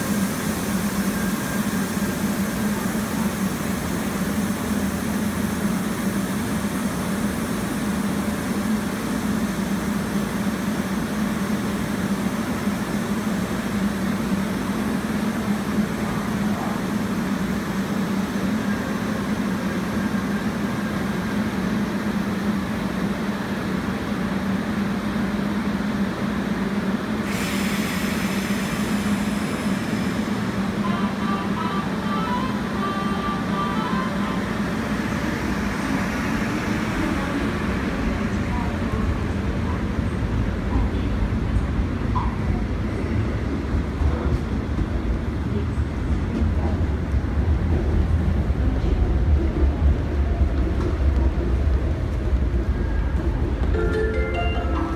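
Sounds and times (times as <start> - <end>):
train equipment humming: 0.0 - 54.9
air-conditioning hiss: 53.5 - 54.9.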